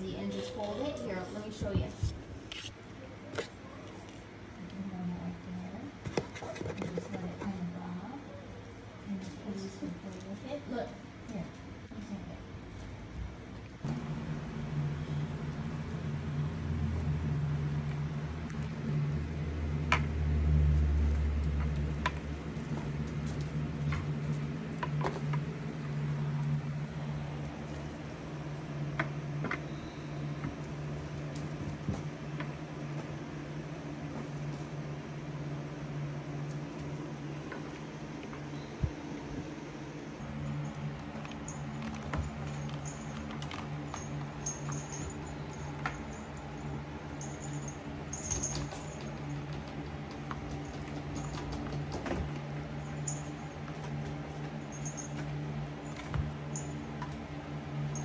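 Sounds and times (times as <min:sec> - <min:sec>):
steady low hum: 0:00.0 - 0:58.0
kittens tapping and scratching toys: 0:15.4 - 0:34.7, 0:40.2 - 0:58.0.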